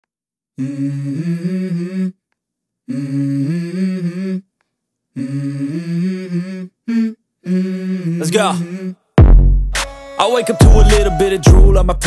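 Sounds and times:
hummed vocal phrase: 5.2 - 9.0, 10.4 - 12.0.

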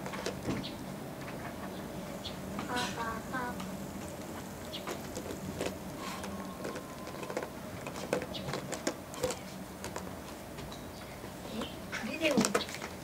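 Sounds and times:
dog gnawing plastic bottle: 5.0 - 10.1.

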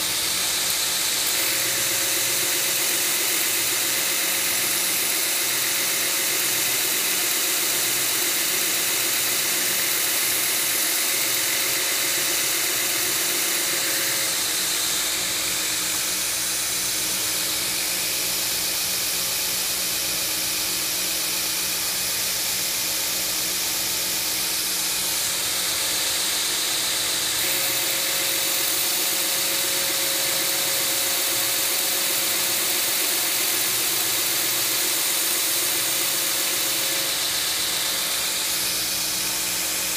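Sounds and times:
belt grinder grinding steel: 0.0 - 15.1, 26.8 - 39.9
belt grinder running: 0.0 - 19.6, 21.4 - 39.9.

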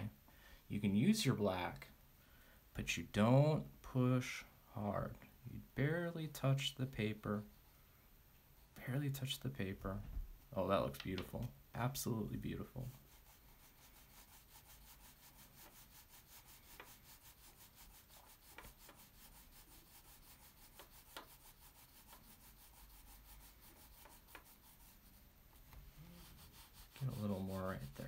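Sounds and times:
crayon rubbing on paper: 12.5 - 25.2, 25.8 - 28.0.

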